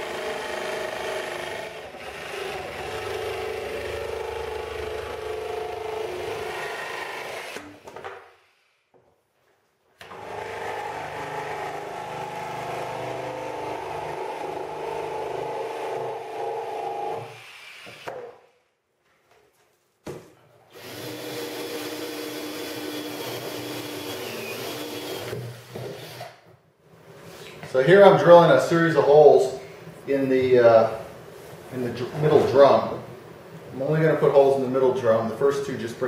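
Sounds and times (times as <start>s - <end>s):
electric jigsaw cutting plastic: 0.0s - 7.7s, 10.0s - 18.1s, 20.7s - 26.4s
cordless drill boring plastic: 20.7s - 26.4s.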